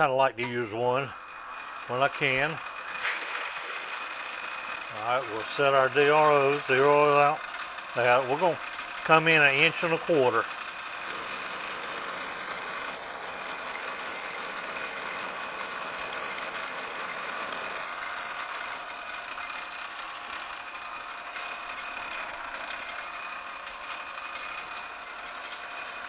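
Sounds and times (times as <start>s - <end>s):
metal lathe humming: 0.0s - 26.0s
hiss of drill cutting: 2.9s - 6.0s.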